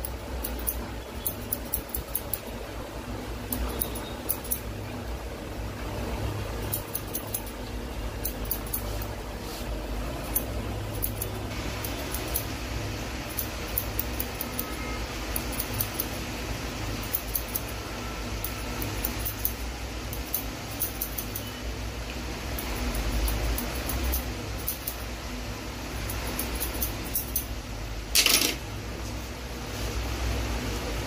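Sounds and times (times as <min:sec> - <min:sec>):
scissors snipping hair: 0:00.0 - 0:02.5, 0:03.5 - 0:04.8, 0:06.6 - 0:12.5, 0:13.2 - 0:16.2, 0:17.0 - 0:17.7, 0:18.4 - 0:21.5, 0:22.6 - 0:25.0, 0:26.0 - 0:27.5
steady low hum: 0:00.0 - 0:31.0.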